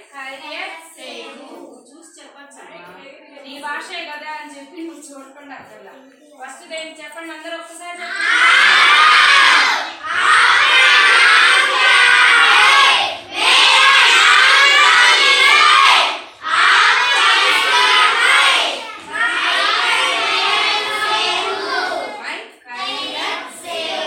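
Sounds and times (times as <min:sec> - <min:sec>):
children calling out together: 0:08.0 - 0:24.0.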